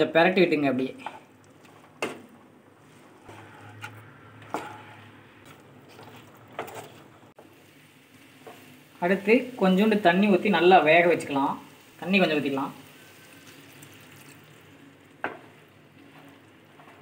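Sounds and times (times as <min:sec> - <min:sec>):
spatula stirring in a pan: 0:00.9 - 0:09.7, 0:12.7 - 0:17.0.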